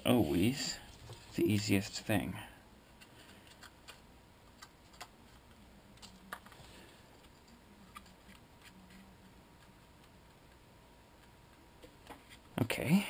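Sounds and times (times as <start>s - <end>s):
skewer clicking and tapping on paper: 3.3s - 5.1s.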